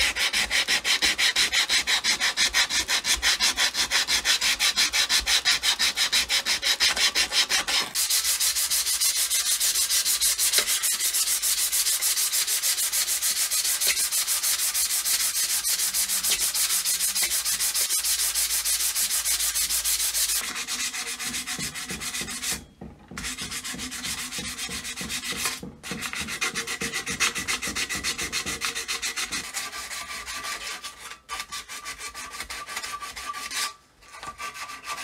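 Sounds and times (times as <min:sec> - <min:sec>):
hand sanding strokes: 0:00.0 - 0:35.0.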